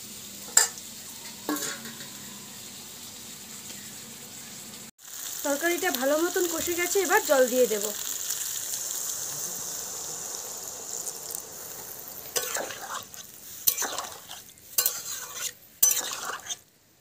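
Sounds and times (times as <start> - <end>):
water sizzling in hot pan: 0.0 - 17.0
metal spatula scraping pan: 1.5 - 2.2, 11.8 - 16.6.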